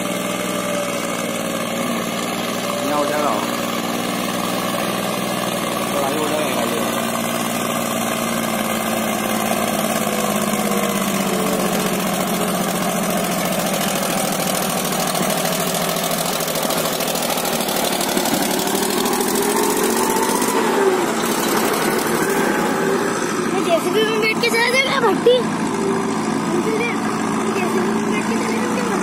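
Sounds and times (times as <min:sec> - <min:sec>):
diesel tractor engine passing: 0:00.0 - 0:29.0.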